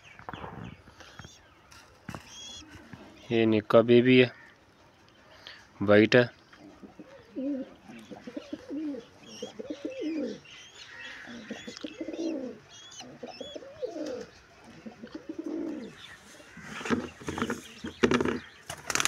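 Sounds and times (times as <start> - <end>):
pigeons cooing: 6.5 - 19.0.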